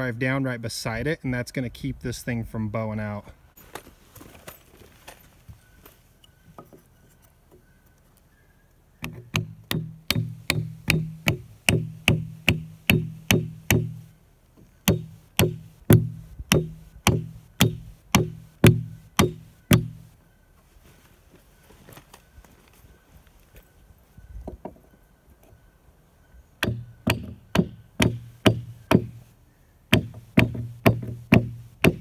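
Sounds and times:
hammer driving nails into wood: 0:09.0 - 0:14.0, 0:14.9 - 0:20.0, 0:26.6 - 0:29.2, 0:29.9 - 0:32.0.

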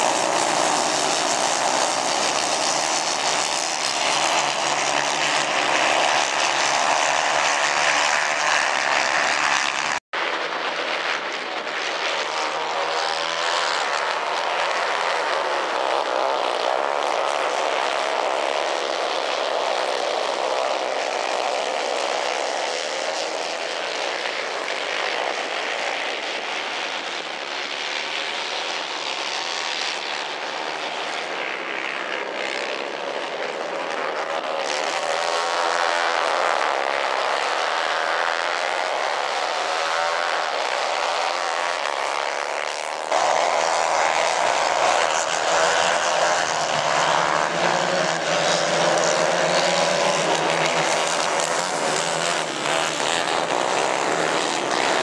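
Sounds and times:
kart engines buzzing: 0:00.0 - 0:10.0, 0:31.9 - 0:55.0.

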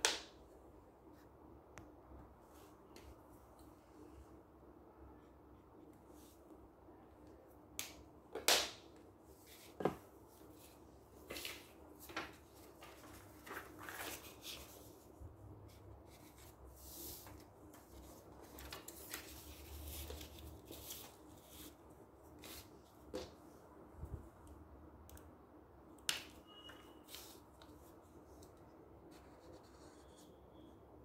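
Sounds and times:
paper rustling and sliding: 0:10.6 - 0:15.1, 0:15.7 - 0:22.8.

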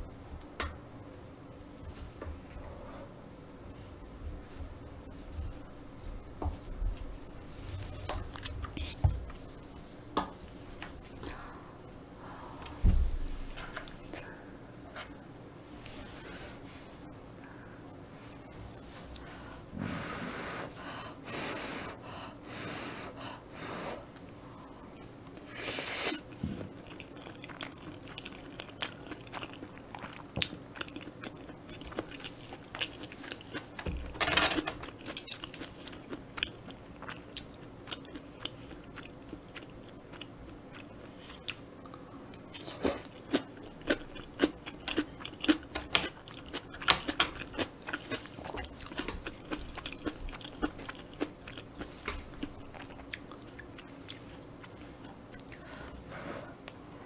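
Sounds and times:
crunching while chewing: 0:25.4 - 0:33.8, 0:34.6 - 0:55.7
chewing with wet mouth clicks: 0:26.8 - 0:33.6, 0:34.8 - 0:55.7.

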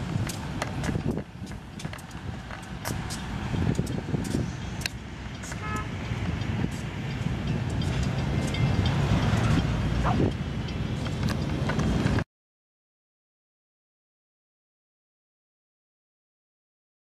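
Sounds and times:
train rumbling past: 0:00.0 - 0:12.2
wheel clicks on rail: 0:00.0 - 0:12.2
train horn toot: 0:05.5 - 0:06.1.

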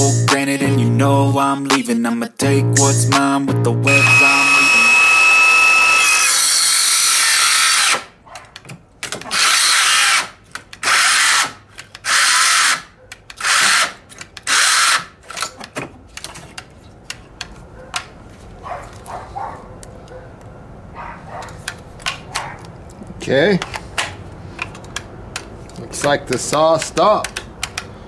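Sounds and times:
circular saw running: 0:03.9 - 0:08.0.

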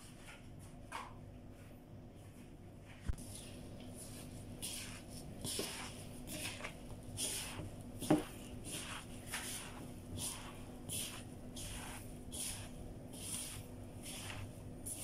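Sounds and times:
hand squishing meat mixture: 0:03.2 - 0:15.0.

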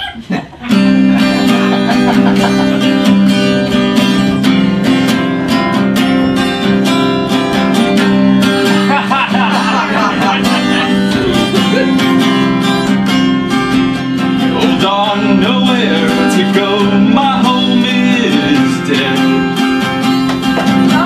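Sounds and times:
strummed guitar: 0:00.5 - 0:21.0
person singing: 0:08.8 - 0:21.0.

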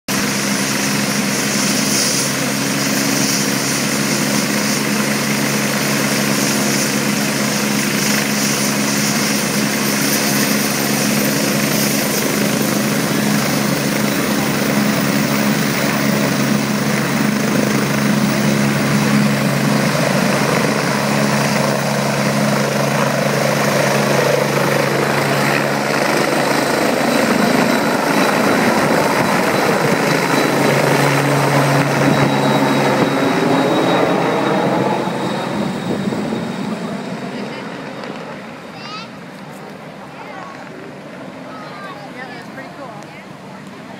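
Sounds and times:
helicopter rotor hum: 0:00.1 - 0:43.9
high turbine whine: 0:00.1 - 0:43.9.

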